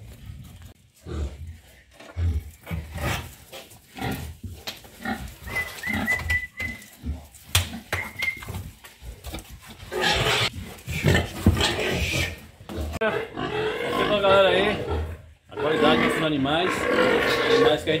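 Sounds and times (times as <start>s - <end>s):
young boars grunting: 9.9s - 18.0s.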